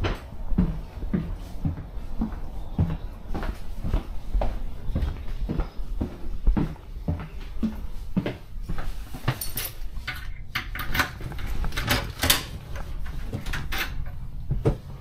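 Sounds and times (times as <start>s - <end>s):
low rumble: 0.0s - 8.1s.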